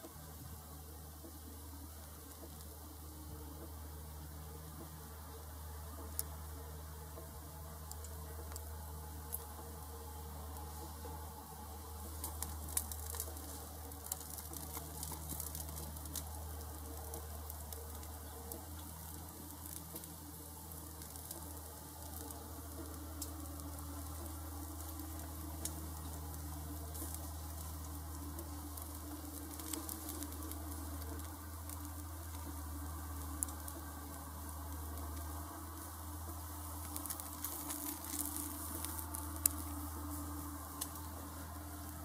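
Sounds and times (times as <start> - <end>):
sharp pops and crackles: 0.0 - 42.0
steady low hum: 0.0 - 42.0
meat sizzling on a grill: 3.9 - 42.0.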